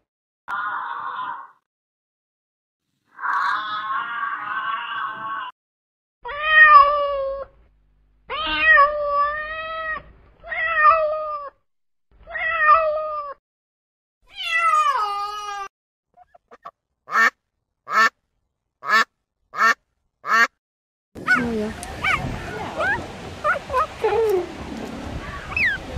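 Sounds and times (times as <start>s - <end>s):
kitten meowing: 8.3s - 11.5s
duck quacking: 16.2s - 18.1s, 18.8s - 20.5s.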